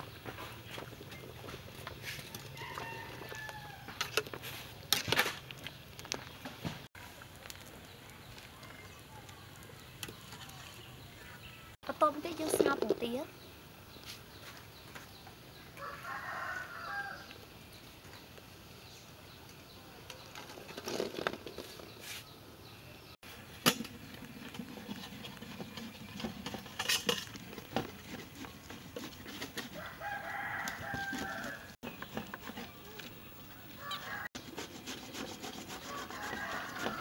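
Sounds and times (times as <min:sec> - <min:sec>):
scraping and handling noise: 0:00.0 - 0:11.5, 0:12.1 - 0:13.3, 0:20.0 - 0:22.4, 0:23.2 - 0:37.0
chicken calls: 0:28.3 - 0:34.4.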